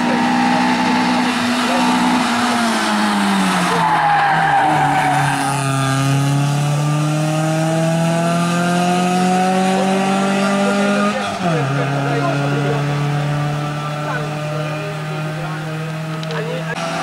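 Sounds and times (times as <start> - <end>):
tyre squeal: 0.0 - 6.0
rally car passing and accelerating: 0.0 - 17.0.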